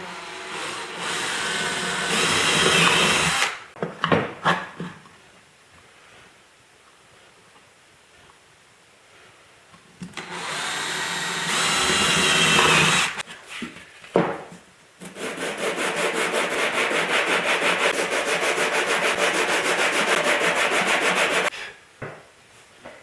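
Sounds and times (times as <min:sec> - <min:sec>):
drill boring through wood: 0:00.0 - 0:03.6, 0:10.2 - 0:13.2, 0:17.6 - 0:21.5
wood rubbing on sandpaper: 0:15.2 - 0:21.5.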